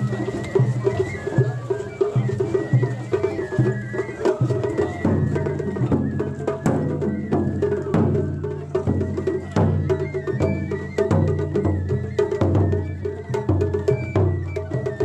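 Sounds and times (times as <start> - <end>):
taiko drum beating: 0.0 - 15.0.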